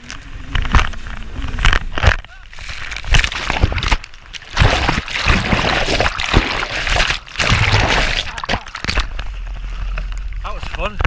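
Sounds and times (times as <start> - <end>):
water splashing over camera: 0.0 - 11.0.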